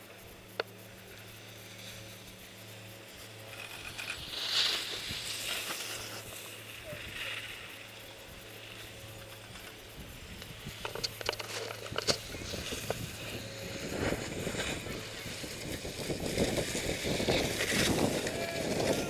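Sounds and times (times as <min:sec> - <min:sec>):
low electrical hum: 0:00.0 - 0:19.0
skis scraping over snow: 0:00.9 - 0:19.0.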